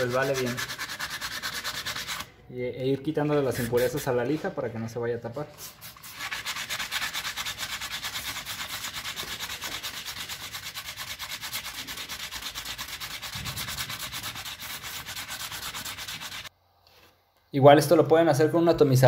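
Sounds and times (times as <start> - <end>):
wet sanding on metal: 0.0 - 2.2, 5.6 - 16.5.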